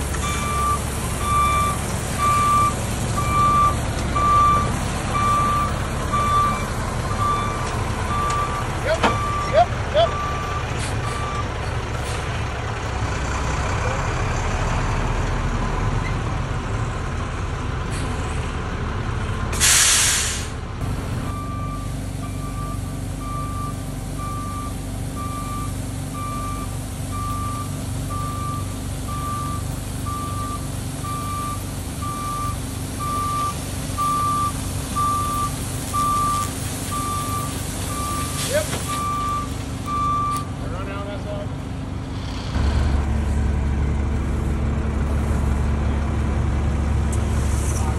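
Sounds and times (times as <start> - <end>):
diesel truck engine running: 0.0 - 47.9
backup alarm beeping: 0.2 - 11.5, 21.3 - 40.5
loud air hiss: 19.6 - 20.6.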